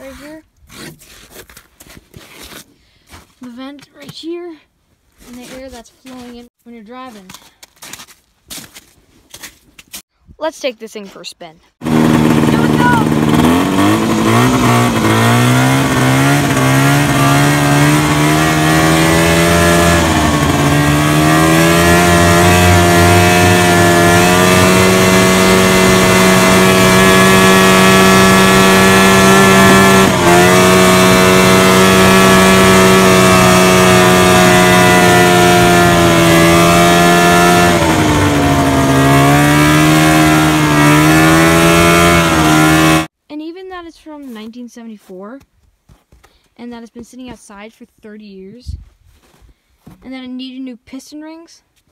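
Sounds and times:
snowmobile engine revving: 0:11.8 - 0:43.1.

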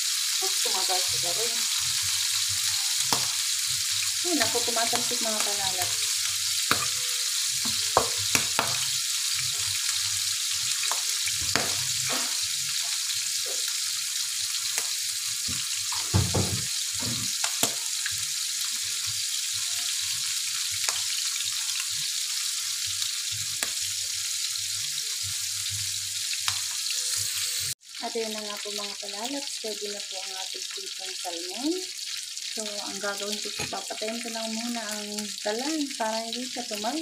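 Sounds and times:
fish sizzling in oil: 0:00.0 - 0:37.0
oil popping and crackling: 0:01.2 - 0:07.0, 0:07.6 - 0:13.8, 0:14.6 - 0:18.8, 0:20.7 - 0:21.9.

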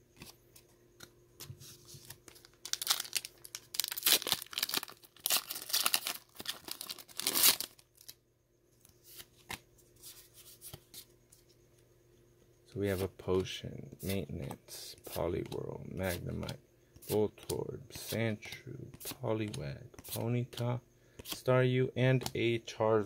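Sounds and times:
foil wrapper ripping and crinkling: 0:02.3 - 0:08.2.

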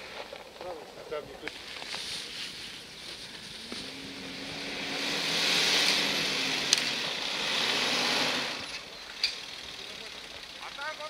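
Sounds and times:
engine working under load: 0:03.0 - 0:11.0.

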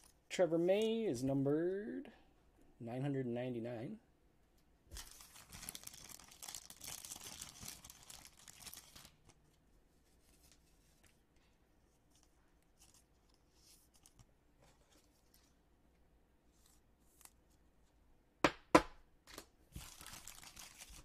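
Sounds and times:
plastic packaging crinkling: 0:04.9 - 0:09.5, 0:19.7 - 0:21.0.

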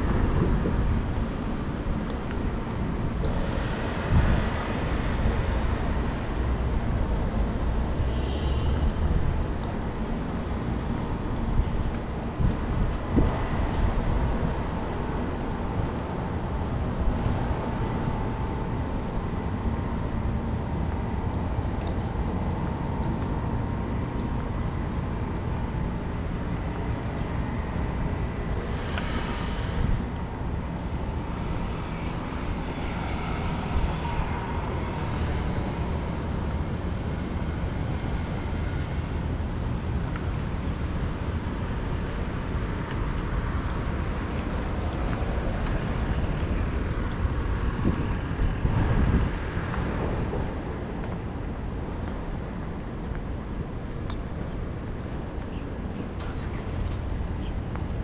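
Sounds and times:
road traffic rumble: 0:00.0 - 0:58.0.

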